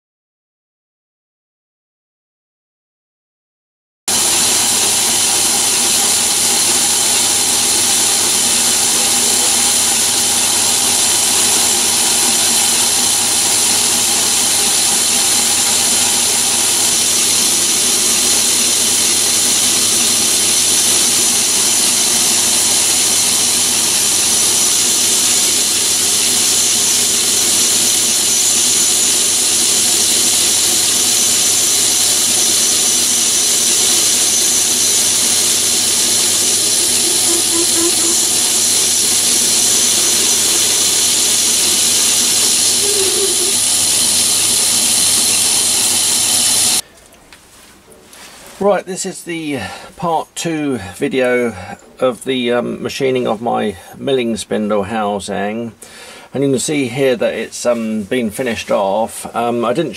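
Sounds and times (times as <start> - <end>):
metal lathe running: 4.1 - 46.8
steady high machine tone: 4.1 - 46.8.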